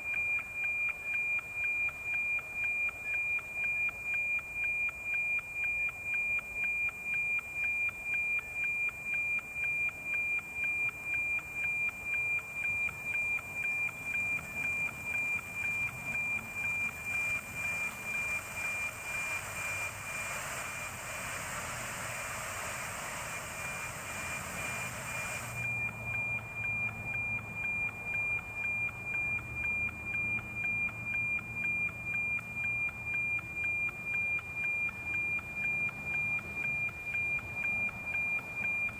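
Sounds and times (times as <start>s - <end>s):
steady high whistle: 0.0s - 38.9s
tick-tock beat: 0.0s - 38.9s
radio hiss: 17.6s - 25.6s.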